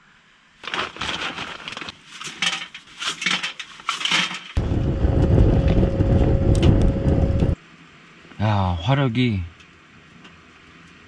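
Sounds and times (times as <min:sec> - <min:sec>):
pellets rattling against metal stove: 0:00.6 - 0:04.6
fire rumbling in firebox: 0:04.5 - 0:07.6
faint steady whine: 0:04.6 - 0:11.0.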